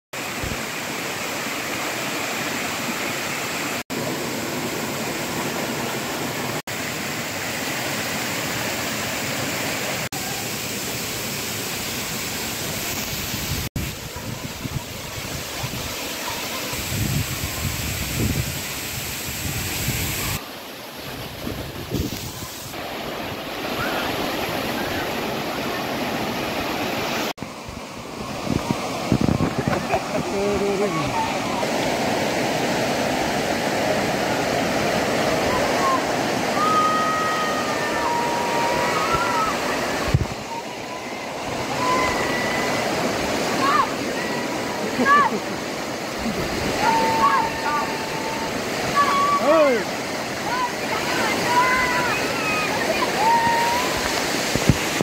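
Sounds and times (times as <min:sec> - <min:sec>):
rushing stream water: 0:00.1 - 0:55.0
waterfall: 0:00.1 - 0:55.0.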